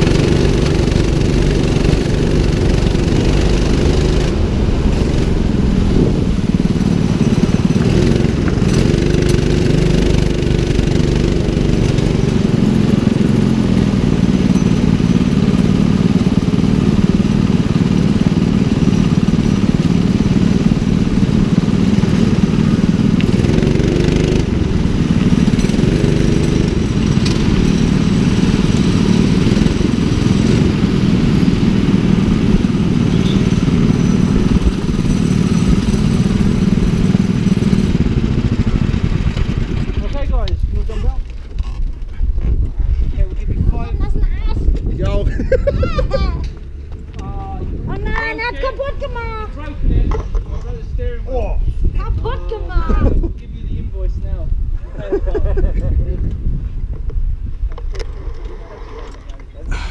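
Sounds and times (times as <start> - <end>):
go-kart engine revving: 0.0 - 42.1, 57.9 - 59.9
other karts: 0.0 - 59.9.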